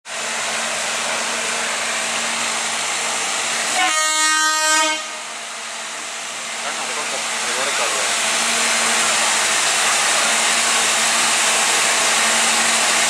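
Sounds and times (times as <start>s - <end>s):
train running: 0.1s - 13.0s
locomotive horn blast: 3.7s - 5.4s.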